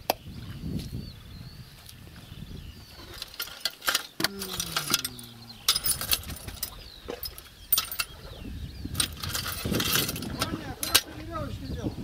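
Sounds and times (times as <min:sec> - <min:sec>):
nails clinking into metal bucket: 0:03.2 - 0:08.1, 0:09.0 - 0:11.1.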